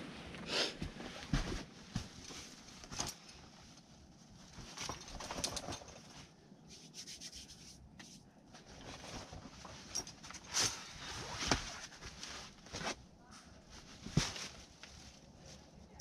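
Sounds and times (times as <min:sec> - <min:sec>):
rustling and scuffing: 0:00.1 - 0:04.8, 0:08.0 - 0:15.8.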